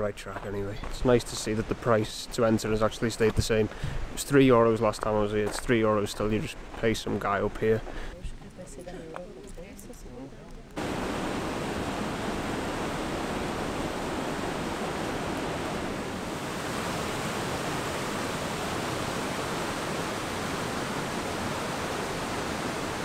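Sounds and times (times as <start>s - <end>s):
river water rushing: 10.8s - 23.0s.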